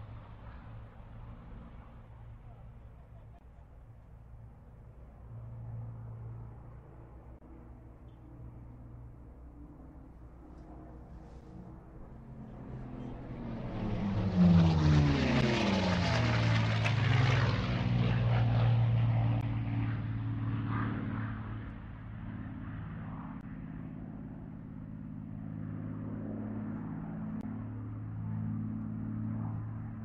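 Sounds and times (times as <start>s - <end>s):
propeller airplane engine drone: 0.0s - 30.0s.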